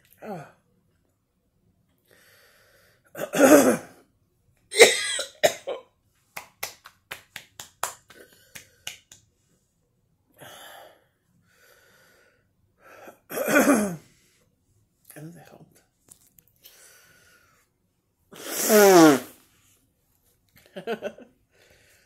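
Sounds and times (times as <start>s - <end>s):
woman coughing: 4.8s - 5.9s, 13.3s - 14.0s.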